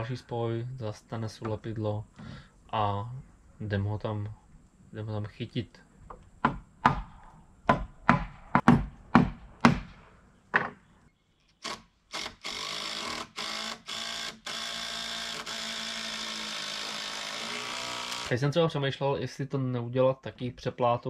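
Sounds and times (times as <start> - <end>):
cordless drill driving screws: 11.6 - 18.3.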